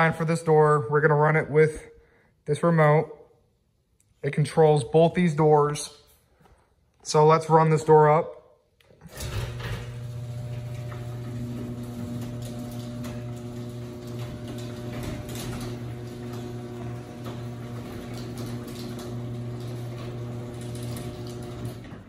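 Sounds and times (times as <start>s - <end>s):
garage door opener motor humming: 9.0s - 22.0s
door rattling in tracks: 9.1s - 22.0s.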